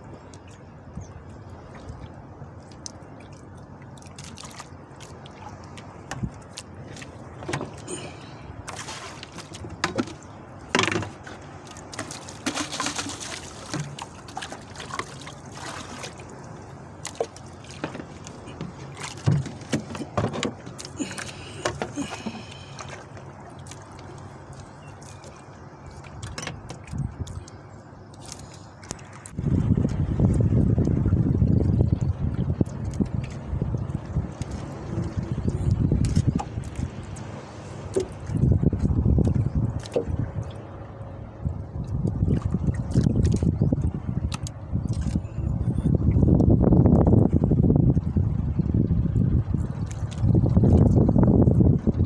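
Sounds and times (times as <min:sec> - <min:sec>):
water lapping against boat hull: 0:00.0 - 0:52.0
knocks and handling noises: 0:17.8 - 0:20.7.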